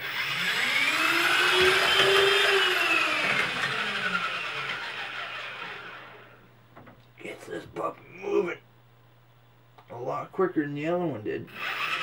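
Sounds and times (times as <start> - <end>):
model boat motor whining: 0.0 - 6.4, 11.6 - 12.0.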